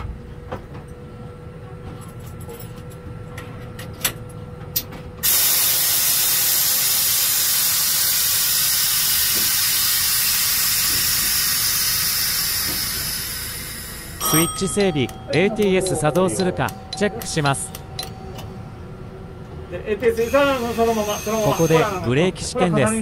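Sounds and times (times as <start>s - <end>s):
loud steady hiss: 5.2s - 14.2s
control clicks: 14.2s - 18.5s.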